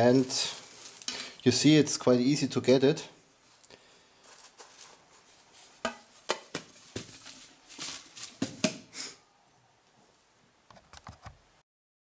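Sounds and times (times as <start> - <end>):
soft rustling: 0.0 - 1.6, 3.4 - 8.6.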